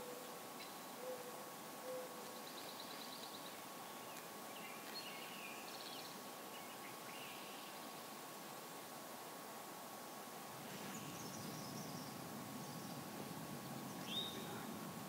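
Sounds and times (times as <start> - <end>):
outdoor hiss: 0.0 - 15.0
dove cooing: 1.0 - 2.2
songbird chirping and trilling: 1.9 - 8.0, 10.7 - 14.7.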